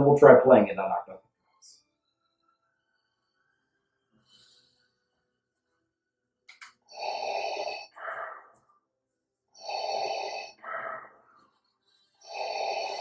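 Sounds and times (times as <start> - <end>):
mechanical respirator breathing: 6.9 - 8.6, 9.6 - 11.4, 12.1 - 13.0.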